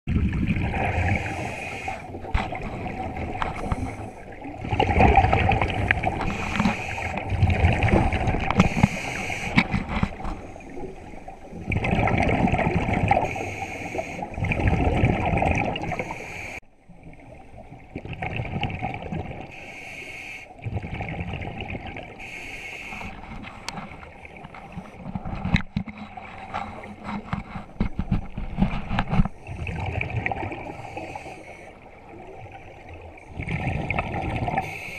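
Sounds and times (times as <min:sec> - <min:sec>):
bubbles gurgling underwater: 0:00.1 - 0:13.4, 0:14.2 - 0:16.2, 0:17.0 - 0:19.5, 0:20.6 - 0:22.2, 0:29.4 - 0:31.1, 0:31.9 - 0:34.7
diver breathing through regulator: 0:00.9 - 0:02.3, 0:03.4 - 0:04.6, 0:05.6 - 0:07.3, 0:08.5 - 0:11.0, 0:13.1 - 0:14.4, 0:15.9 - 0:16.6, 0:19.5 - 0:20.5, 0:22.2 - 0:23.4, 0:30.6 - 0:31.8.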